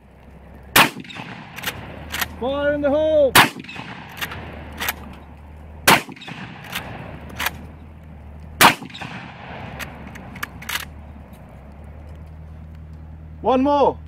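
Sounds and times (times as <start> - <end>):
shotgun firing: 0.8 - 2.4, 3.3 - 5.1, 5.8 - 7.7, 8.6 - 11.0
shotgun lever clacks: 0.9 - 2.4, 3.4 - 7.8, 8.4 - 11.0.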